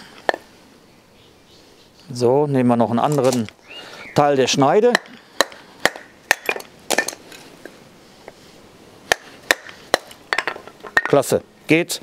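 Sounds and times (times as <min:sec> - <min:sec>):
sharp wooden knocks: 0:04.9 - 0:07.2, 0:09.1 - 0:11.2.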